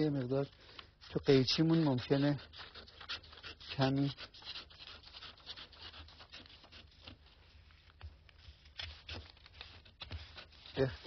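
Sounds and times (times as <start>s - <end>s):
paper rustling on table: 0.0s - 11.0s
scissors snipping paper: 1.6s - 7.2s.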